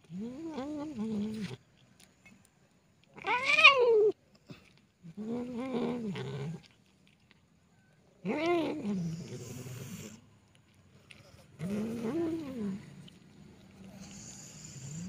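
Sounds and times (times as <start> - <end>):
cat meowing: 3.2 - 4.2.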